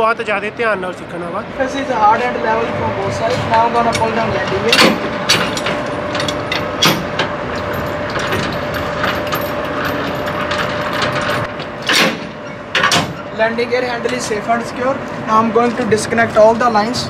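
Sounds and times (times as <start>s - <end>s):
steady engine hum: 0.0s - 17.0s
sharp metal clanks: 3.8s - 13.3s.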